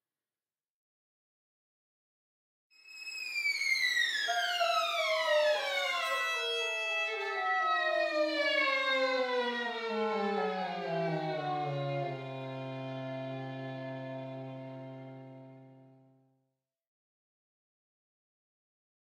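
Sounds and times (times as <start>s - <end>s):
violin and cor anglais sliding down: 10.9s - 15.6s.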